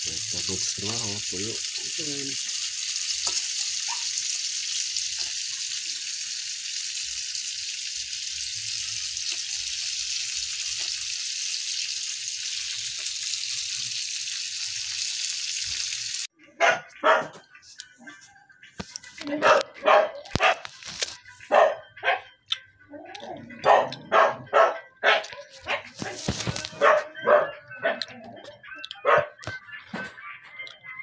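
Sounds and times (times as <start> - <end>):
fish sizzling in hot oil: 0.0 - 16.3
dog barking: 3.8 - 4.2, 16.5 - 17.4, 19.3 - 20.6, 21.5 - 22.4, 23.5 - 28.1, 29.0 - 29.4.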